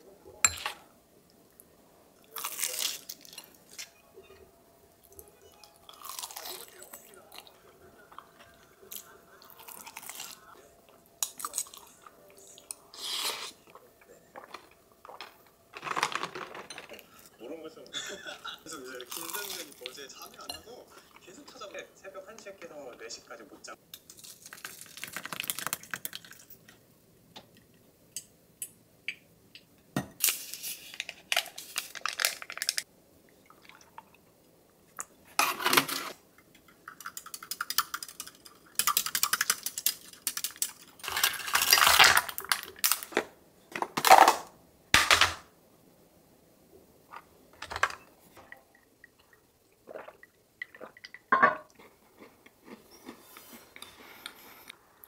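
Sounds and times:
dishes and cutlery clinking: 0:00.4 - 0:00.8, 0:14.5 - 0:17.3, 0:20.3 - 0:21.0, 0:51.3 - 0:51.7.

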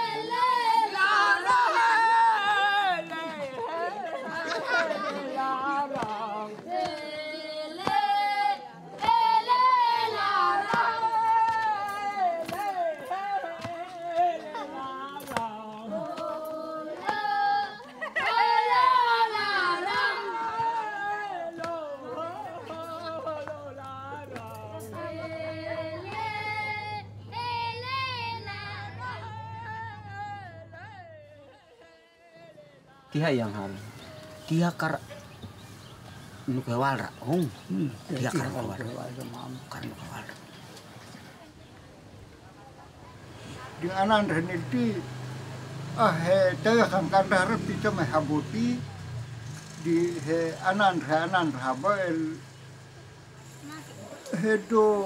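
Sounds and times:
high voice singing unaccompanied: 0:00.0 - 0:34.5
steady low hum: 0:18.8 - 0:32.6.

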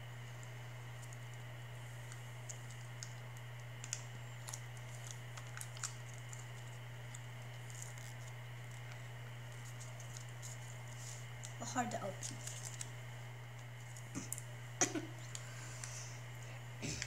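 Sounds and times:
steady low hum: 0:00.0 - 0:17.0
plastic packet crinkling: 0:02.0 - 0:13.0.

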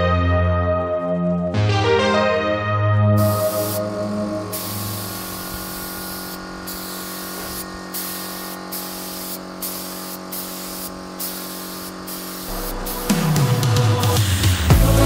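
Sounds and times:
spray can hissing: 0:03.2 - 0:15.0.

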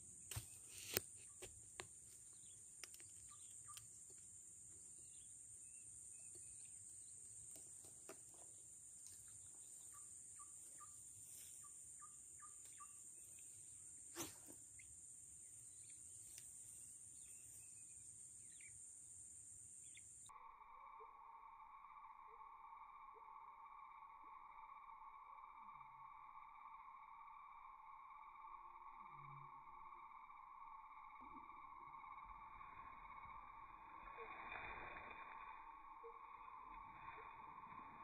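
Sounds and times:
faint bird chirps: 0:00.0 - 0:38.0
high-pitched insect trill: 0:08.4 - 0:38.0.

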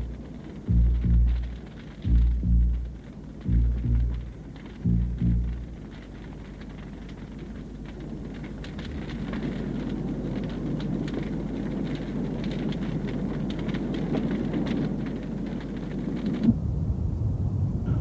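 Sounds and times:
large fire crackling: 0:00.0 - 0:18.0.

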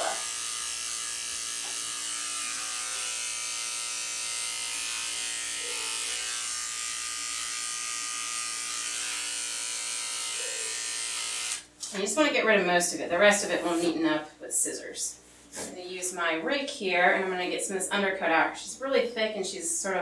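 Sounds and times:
electric clipper running: 0:00.0 - 0:11.7.

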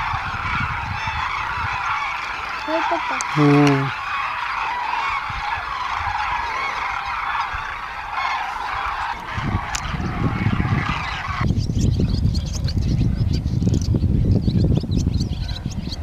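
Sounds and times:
cranes trumpeting calls: 0:00.0 - 0:11.4.

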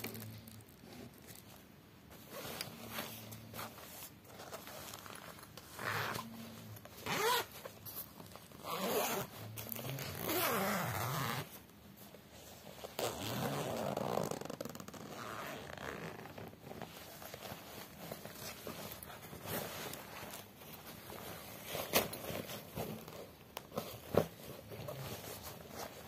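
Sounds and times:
fabric handling: 0:00.0 - 0:26.0
zipper on fabric bag: 0:04.9 - 0:07.5, 0:08.6 - 0:11.6, 0:12.8 - 0:16.5.

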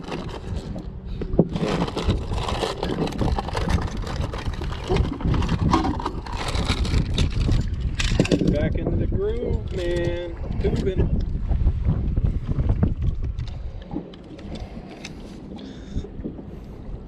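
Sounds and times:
steady low rumble: 0:00.0 - 0:17.0
rummaging through tackle bag: 0:01.4 - 0:08.7.

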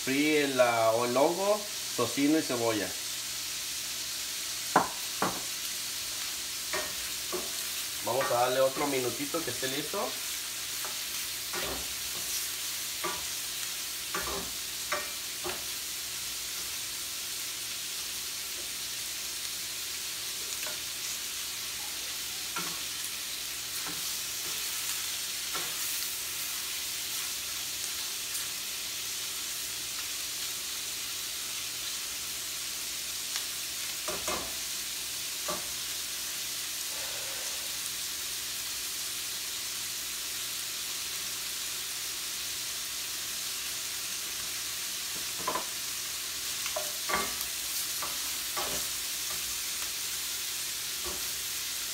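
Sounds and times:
shrimp sizzling in a skillet: 0:00.0 - 0:51.9.

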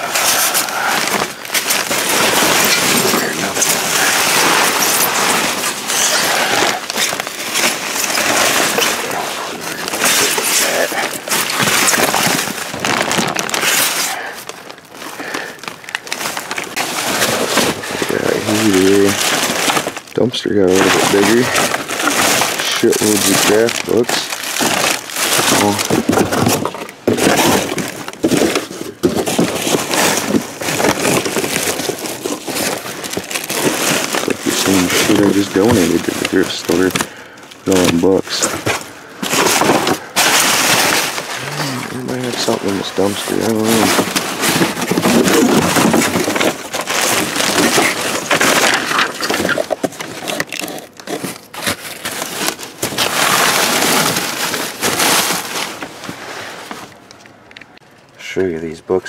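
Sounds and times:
plastic and cardboard crinkling: 0:00.0 - 0:58.7.

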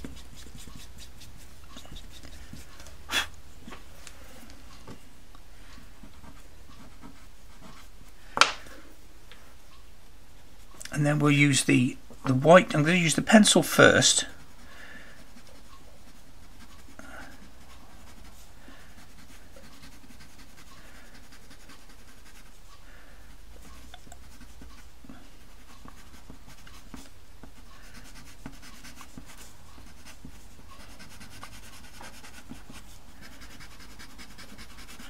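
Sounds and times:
pencil scratching on paper: 0:00.0 - 0:02.9, 0:06.0 - 0:08.1, 0:13.4 - 0:22.7, 0:23.6 - 0:35.0.

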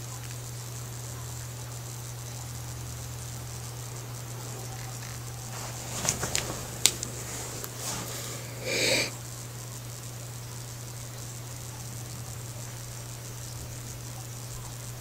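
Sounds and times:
aquarium equipment humming: 0:00.0 - 0:15.0
short breathy hiss: 0:05.5 - 0:09.2.

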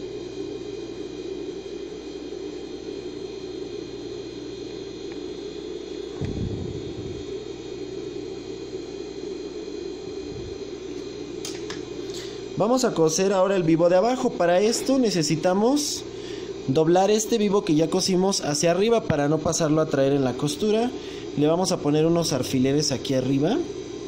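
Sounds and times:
soft low thump: 0:06.2 - 0:07.2.

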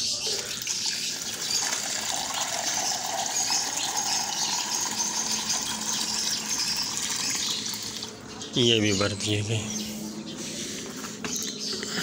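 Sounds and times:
water pouring into plastic cup: 0:00.3 - 0:08.2.

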